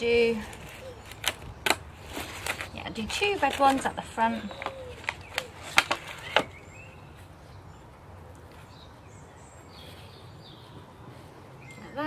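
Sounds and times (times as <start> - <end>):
birds chirping: 0.0 - 12.0
faint outdoor ambience: 0.0 - 12.0.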